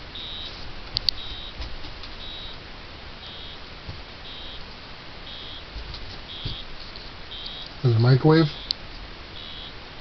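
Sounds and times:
high electronic beeps: 0.2 - 0.5, 1.2 - 1.6, 2.2 - 2.6, 3.2 - 3.6, 4.2 - 4.6, 5.3 - 5.7, 6.3 - 6.7, 7.3 - 7.8, 8.5 - 8.7, 9.4 - 9.8.

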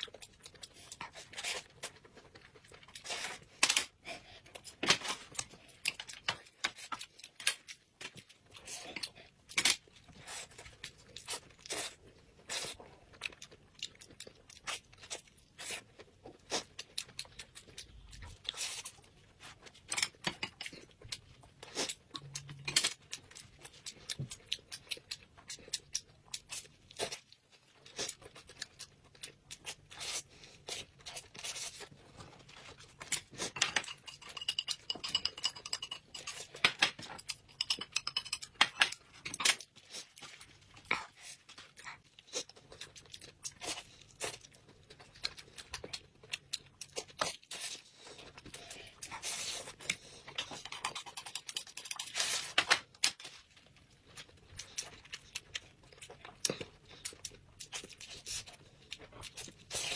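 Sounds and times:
chopsticks clicking on plates: 33.6 - 39.6.

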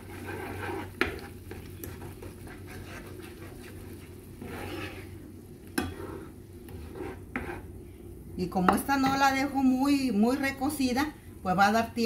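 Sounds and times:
spoon stirring sauce in skillet: 0.0 - 7.8.

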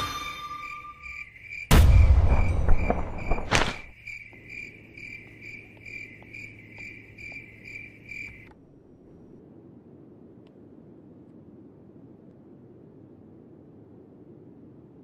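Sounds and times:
crickets chirping: 0.0 - 11.0
brief loud hit: 1.7 - 3.6.

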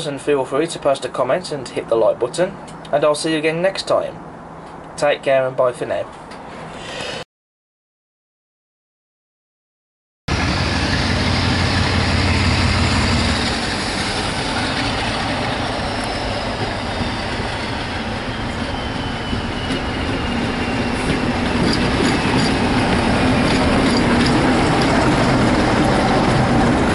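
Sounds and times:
diesel locomotive engine running: 10.3 - 26.9
wheels clattering over rail joints: 10.3 - 26.9.

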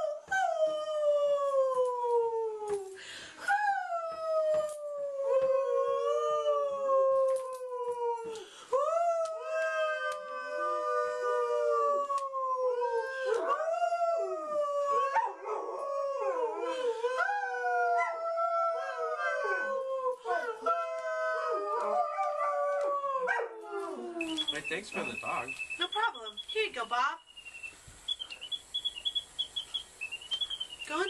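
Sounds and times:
person howling: 0.0 - 24.4
dog howling: 3.7 - 25.6.

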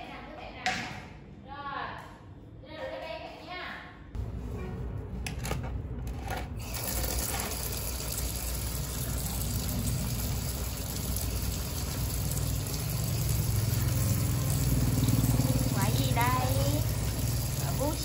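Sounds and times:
water splashing on concrete: 6.7 - 18.0.

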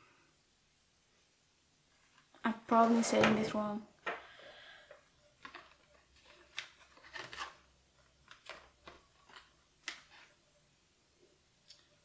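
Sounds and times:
packaging rustling: 5.4 - 10.4.

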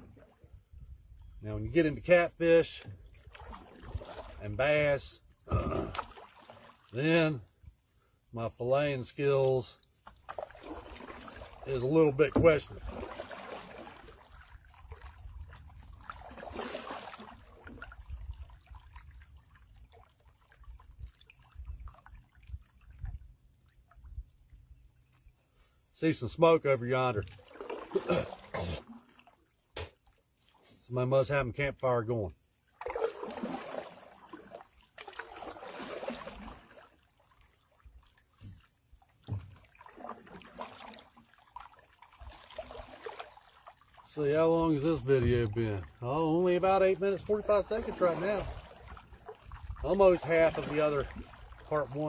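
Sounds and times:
water swishing and trickling: 0.0 - 52.0
canoe paddle strokes: 1.9 - 31.1, 31.8 - 52.0
water dripping off paddle: 32.8 - 44.2, 50.3 - 52.0.

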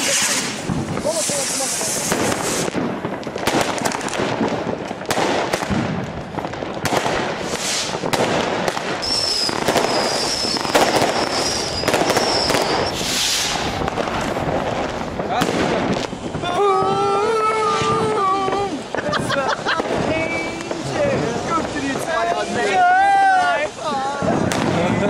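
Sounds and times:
fireworks banging and crackling: 0.0 - 25.0
hissing rushes of rockets: 0.0 - 25.0
high firework whistle: 9.0 - 14.0.

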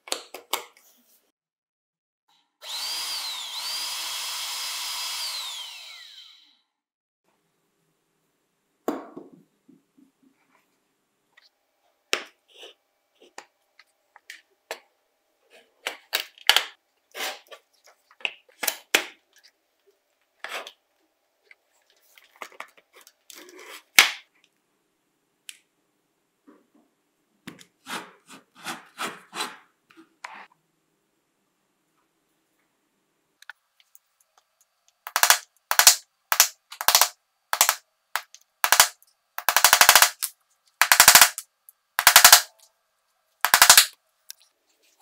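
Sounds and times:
plastic parts clicking and tapping: 34.4 - 42.7, 43.4 - 44.4.

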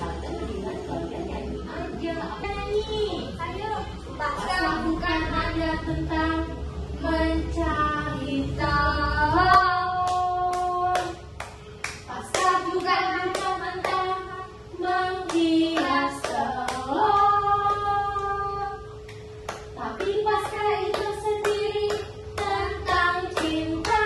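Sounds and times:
clapping along: 9.5 - 14.2, 15.2 - 18.4, 19.1 - 24.0.

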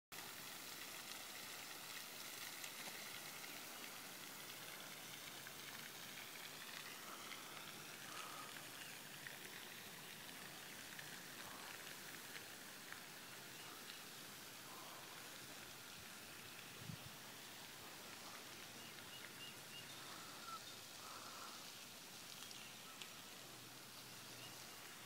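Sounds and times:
fountain spray splashing on water: 0.1 - 25.0.

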